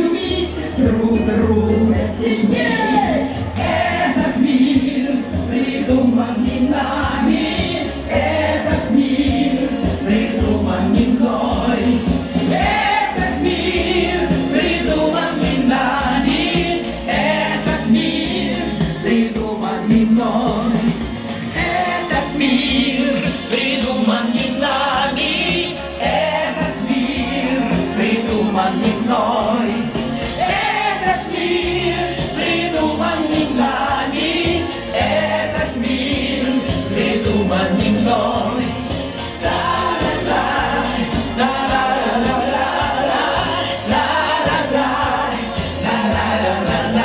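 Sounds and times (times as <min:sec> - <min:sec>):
woman singing into microphone: 0:00.0 - 0:21.0
amplified backing music: 0:00.0 - 0:47.0
electronic keyboard accompaniment: 0:00.0 - 0:47.0.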